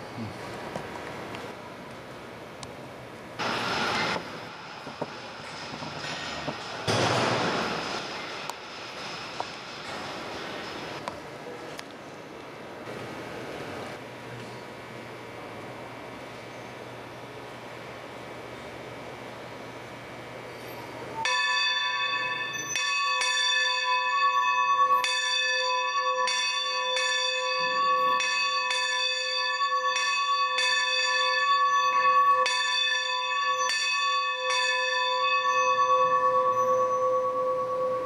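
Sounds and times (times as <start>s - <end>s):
locomotive bell ringing: 21.2s - 38.0s.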